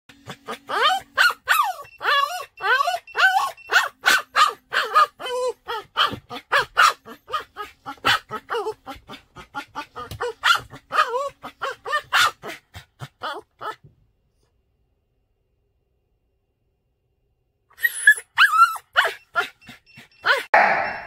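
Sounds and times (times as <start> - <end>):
small dog yapping: 0.2 - 13.8, 17.8 - 20.6.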